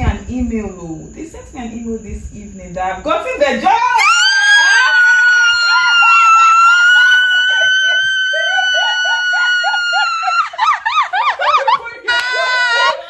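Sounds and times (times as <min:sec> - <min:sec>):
person whooping: 0:04.0 - 0:10.9
people crying out and laughing: 0:04.0 - 0:13.0
person screaming with joy: 0:04.0 - 0:13.0.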